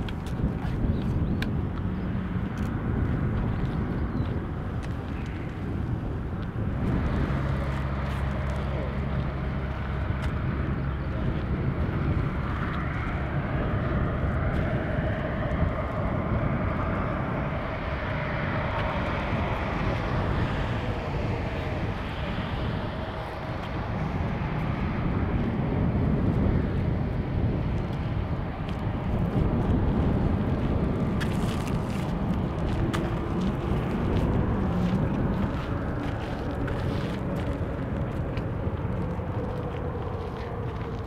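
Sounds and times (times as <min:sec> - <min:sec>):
jet engines whining at taxi power: 0:00.0 - 0:41.0.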